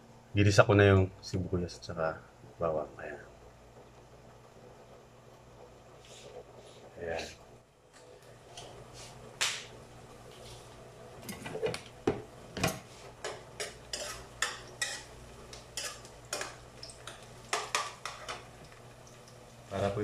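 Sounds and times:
metal spoon scraping a frying pan: 0:13.2 - 0:15.1, 0:15.7 - 0:18.4.

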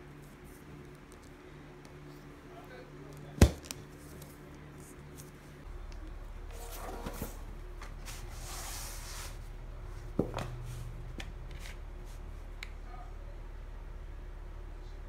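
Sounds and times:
floor mat rustling and rubbing: 0:06.5 - 0:12.5.

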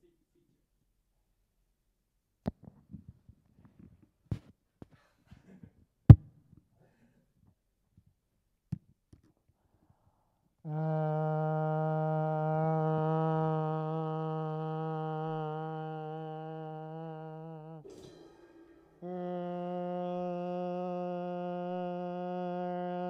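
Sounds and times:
man humming a low note: 0:10.6 - 0:17.9, 0:19.0 - 0:23.0.

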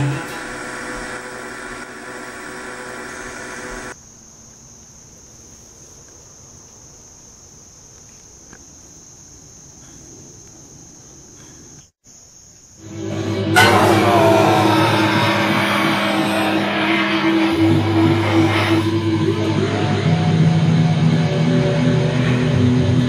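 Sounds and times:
insects trilling: 0:00.0 - 0:21.7
faint outdoor background noise: 0:01.6 - 0:13.2
guitar music: 0:13.4 - 0:20.1.

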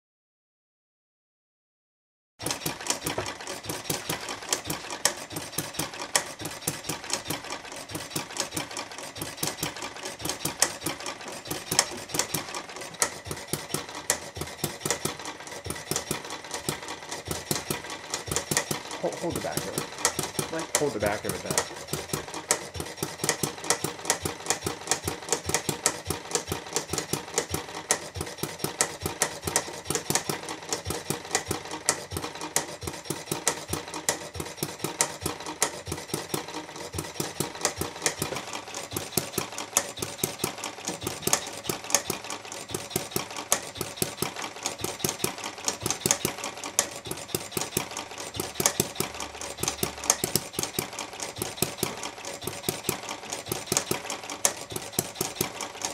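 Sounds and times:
small gas engine clattering: 0:02.4 - 0:55.9.

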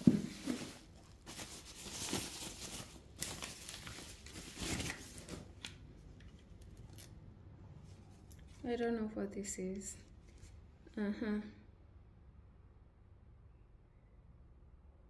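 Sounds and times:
plastic packaging rustling and tearing: 0:00.0 - 0:07.2.

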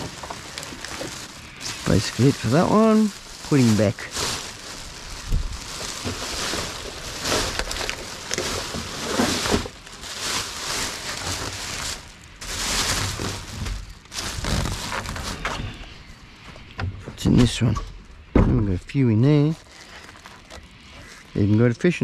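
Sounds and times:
plastic bags rustling: 0:00.0 - 0:16.3, 0:18.8 - 0:21.5
low thumps: 0:16.8 - 0:18.9.

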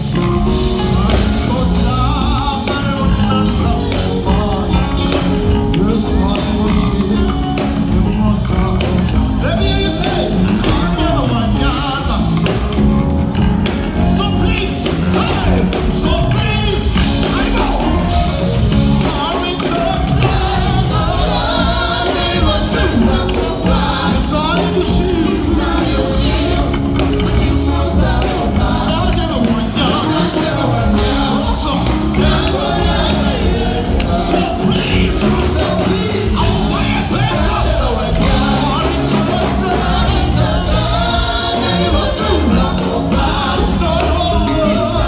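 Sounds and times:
band with electric guitar: 0:00.0 - 0:45.0
man singing into microphone: 0:00.7 - 0:12.8.

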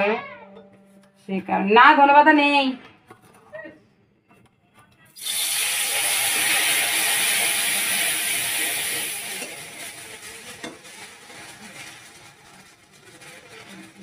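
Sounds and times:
spice paste sizzling in oil: 0:05.2 - 0:14.0.

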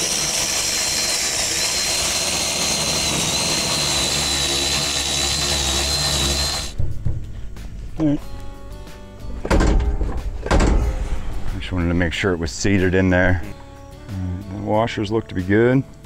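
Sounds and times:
cordless power tool whining: 0:00.0 - 0:06.8.

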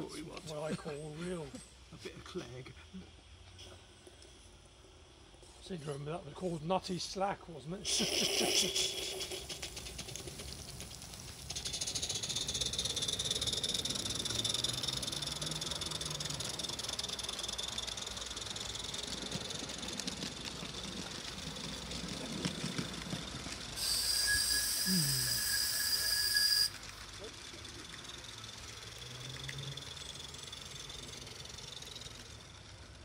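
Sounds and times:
steady steam hiss: 0:05.4 - 0:29.1
shrill burst of steam: 0:07.8 - 0:17.4, 0:23.7 - 0:27.0.

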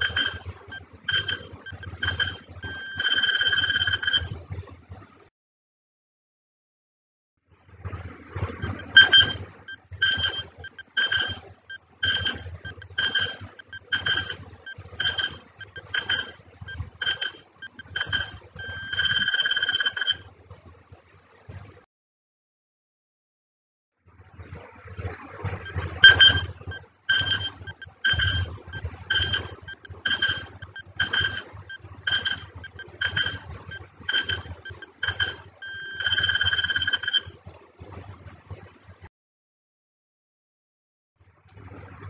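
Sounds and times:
short beeps: 0:00.7 - 0:04.1, 0:08.6 - 0:11.4, 0:12.1 - 0:16.0, 0:16.7 - 0:19.8, 0:25.7 - 0:37.1
alarm ringing with fast rattle: 0:01.1 - 0:04.2, 0:08.6 - 0:09.4, 0:10.1 - 0:11.4, 0:12.1 - 0:20.1, 0:25.7 - 0:37.1
clock ticking: 0:01.7 - 0:02.0, 0:02.6 - 0:03.8, 0:08.6 - 0:09.2, 0:10.6 - 0:10.9, 0:12.7 - 0:12.9, 0:13.6 - 0:14.1, 0:15.6 - 0:15.9, 0:16.7 - 0:16.9, 0:17.6 - 0:18.0, 0:18.6 - 0:19.8, 0:25.7 - 0:31.3, 0:32.2 - 0:34.9, 0:35.6 - 0:36.8
long ringing tone: 0:02.6 - 0:04.0, 0:18.6 - 0:19.8, 0:35.6 - 0:36.9.

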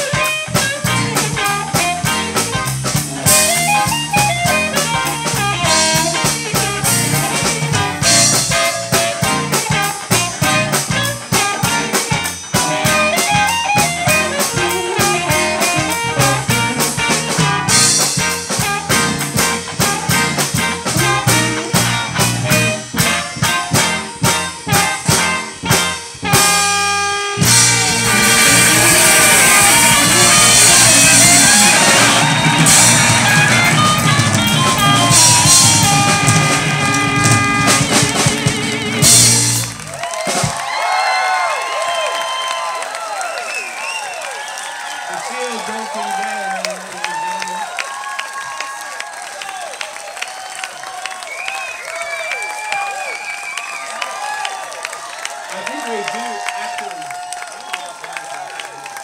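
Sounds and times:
amplified harmonica: 0:00.0 - 0:39.9
blues band playing: 0:00.0 - 0:59.0.

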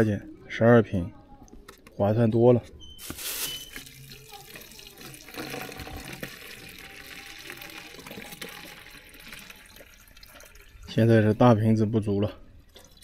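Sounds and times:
water pouring into plastic bottle: 0:03.0 - 0:11.0.

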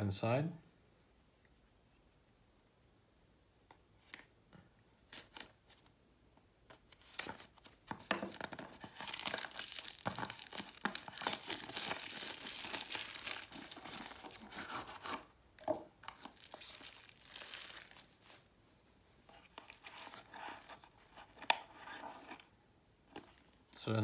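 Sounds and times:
packaging crinkling and tearing: 0:06.9 - 0:15.3, 0:16.0 - 0:18.5.

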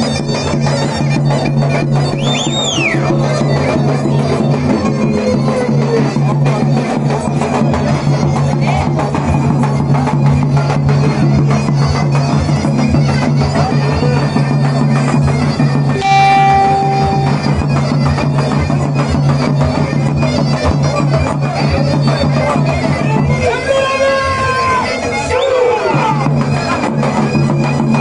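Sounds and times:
reedy shawm melody: 0:11.1 - 0:20.8.

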